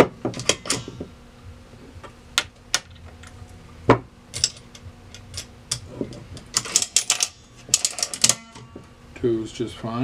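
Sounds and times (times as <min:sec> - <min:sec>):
metallic clicks of vending mechanism: 0:00.3 - 0:01.0, 0:04.3 - 0:08.6.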